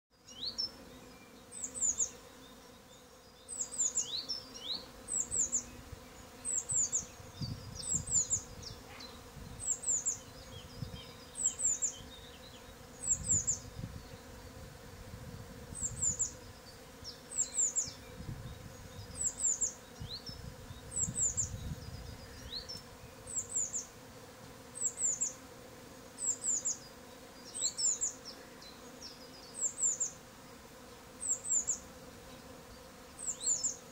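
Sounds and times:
honeybees buzzing: 0.2s - 33.9s
small bird calling: 2.9s - 14.3s.

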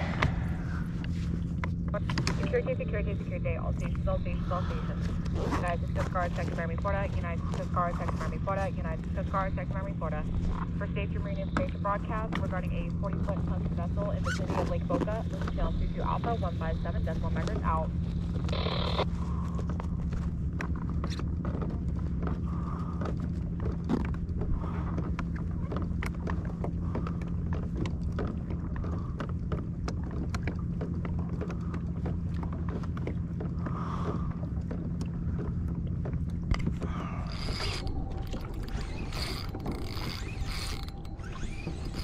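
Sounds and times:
low hum: 0.0s - 42.0s
pedal drive clicking and creaking: 19.7s - 42.0s.

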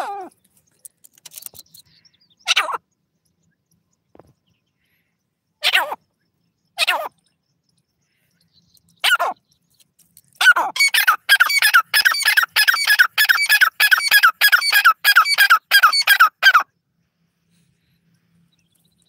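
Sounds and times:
francolin calling: 10.4s - 16.8s.

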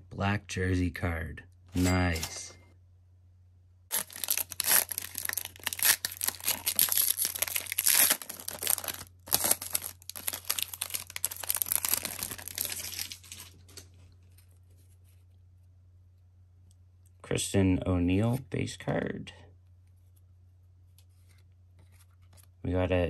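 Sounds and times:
wrapper tearing and crinkling: 3.9s - 13.8s.

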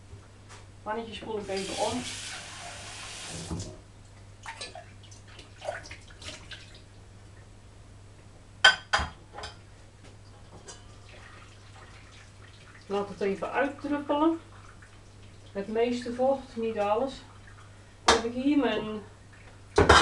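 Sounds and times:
kitchen tap running: 1.4s - 3.8s, 10.4s - 18.3s.

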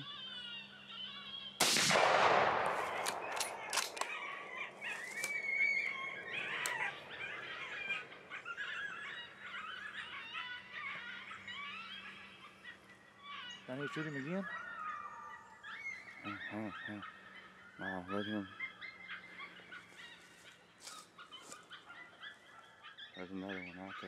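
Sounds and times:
high wavering yelps and squeals: 0.0s - 1.6s, 2.9s - 24.0s
rifle shot: 1.6s - 7.0s
sharp clicks: 1.6s - 7.0s.

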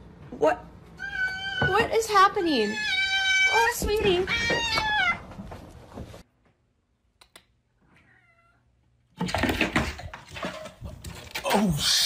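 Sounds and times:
rustling noise: 5.2s - 6.3s
cat meowing softly: 7.9s - 8.7s.

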